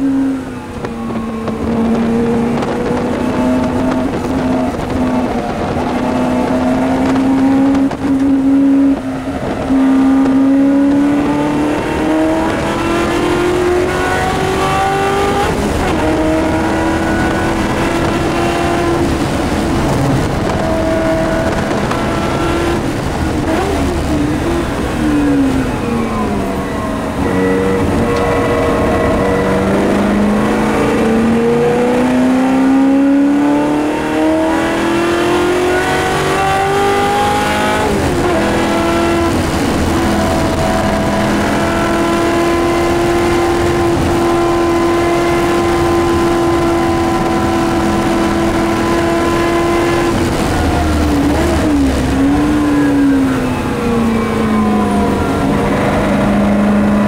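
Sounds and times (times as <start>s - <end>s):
racing car engine accelerating: 0.0s - 57.0s.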